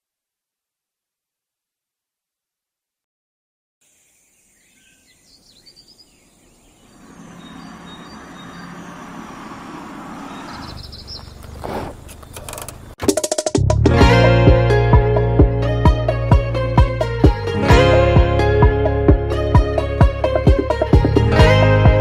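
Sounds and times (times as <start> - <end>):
faint bird chirps: 3.8 - 12.4
outdoor ambience: 3.8 - 13.2
music with plucked strings: 13.7 - 22.0.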